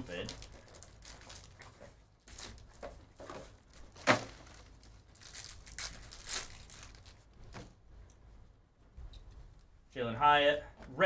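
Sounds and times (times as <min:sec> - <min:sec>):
foil wrapper crinkling and ripping: 0:00.0 - 0:02.9, 0:03.6 - 0:07.3
sharp loud crackle of foil: 0:03.9 - 0:07.2.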